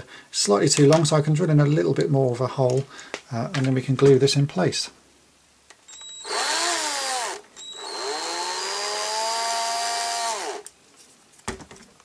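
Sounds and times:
power drill whining: 0:05.9 - 0:10.7.

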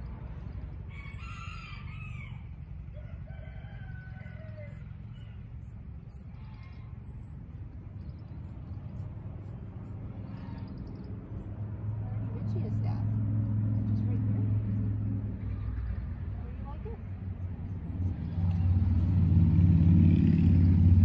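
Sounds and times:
steady low rumble: 0:00.0 - 0:21.0
rooster crowing: 0:00.9 - 0:05.4.

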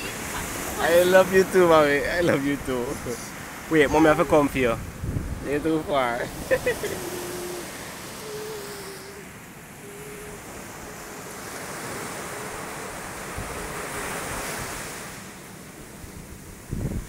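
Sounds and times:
wind buffeting microphone: 0:00.0 - 0:09.2, 0:16.0 - 0:17.0
surf waves breaking on sand: 0:00.0 - 0:17.0.

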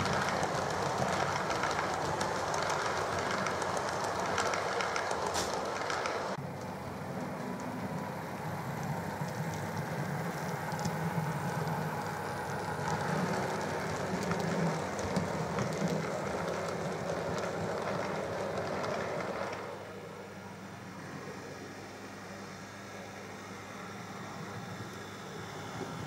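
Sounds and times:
wheels clicking over track: 0:00.0 - 0:20.3
model train motor hum: 0:00.0 - 0:21.0.

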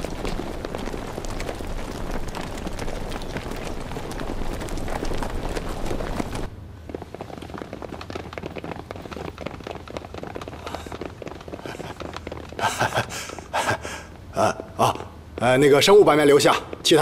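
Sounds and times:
boots tramping and shuffling: 0:00.0 - 0:13.8, 0:15.3 - 0:17.0
man laughing: 0:11.6 - 0:15.2.

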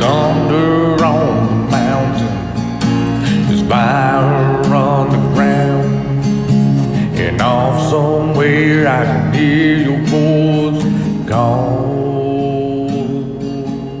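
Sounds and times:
person singing long notes: 0:07.2 - 0:14.0.

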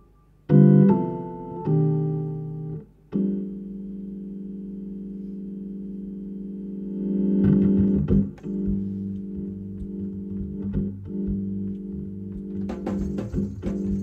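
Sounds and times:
organ sustained chord: 0:00.0 - 0:14.0
drum and cymbal hits: 0:12.6 - 0:14.0.

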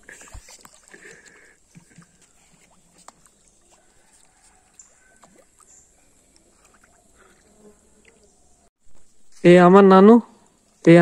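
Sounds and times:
fish plopping at pond surface: 0:00.0 - 0:08.3
quiet outdoor ambience: 0:00.0 - 0:11.0.

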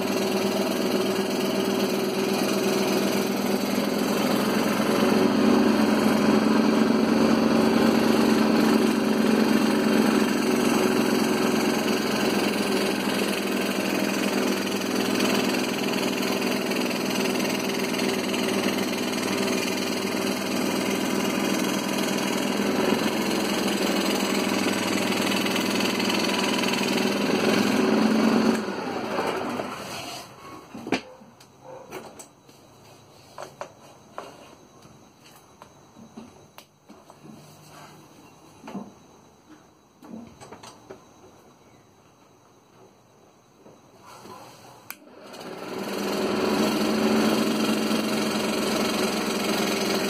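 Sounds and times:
scroll saw cutting wood: 0:00.0 - 0:30.4, 0:44.9 - 0:50.0.

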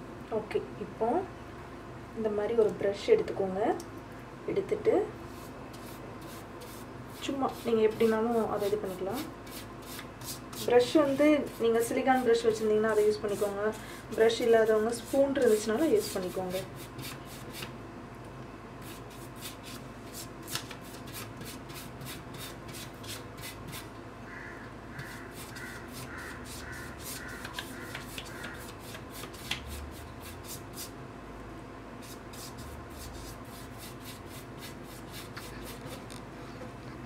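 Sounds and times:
brush scratching on paper: 0:05.3 - 0:13.8, 0:14.4 - 0:17.7, 0:25.0 - 0:30.9, 0:32.0 - 0:36.2.

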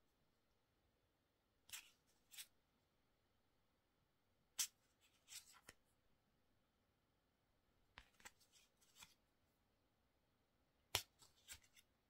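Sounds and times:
cards flipping and sliding: 0:01.7 - 0:02.6, 0:04.6 - 0:05.8, 0:08.0 - 0:09.2, 0:10.9 - 0:11.9.

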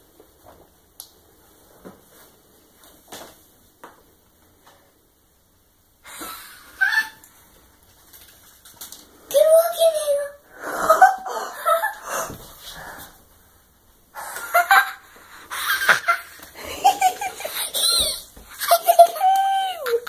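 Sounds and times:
children laughing and squealing: 0:06.1 - 0:07.2, 0:14.5 - 0:20.0.

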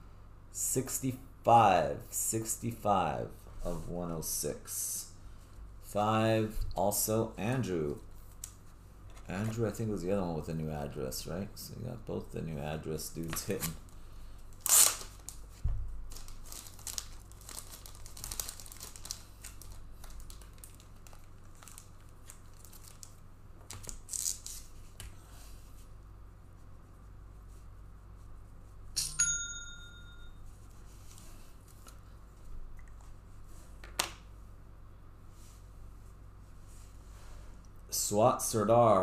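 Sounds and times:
wrappers crinkling and tearing: 0:13.4 - 0:24.8
bright bell-like ding: 0:29.0 - 0:30.4.

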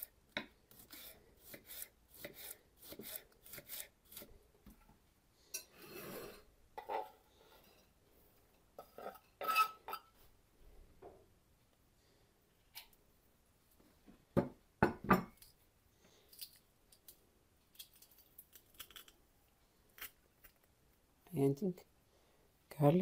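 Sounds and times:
knife scraping board: 0:00.7 - 0:04.3, 0:05.8 - 0:07.0.

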